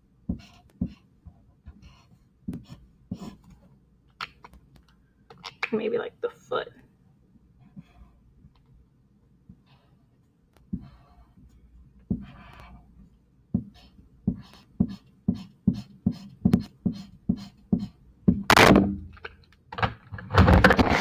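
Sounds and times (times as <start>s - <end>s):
highlighter scrubbing on paper: 0.3s - 1.1s, 1.8s - 3.5s, 10.7s - 11.4s, 12.1s - 12.9s, 13.6s - 18.0s.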